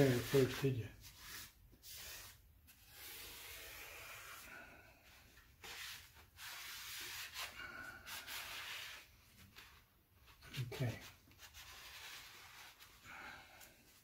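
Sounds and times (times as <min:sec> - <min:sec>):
towel scrubbing metal: 0:00.0 - 0:02.4.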